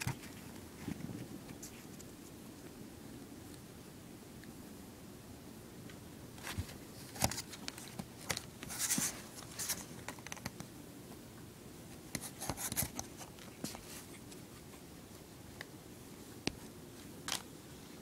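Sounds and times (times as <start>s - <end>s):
puppy scratching at blankets: 12.1s - 15.2s.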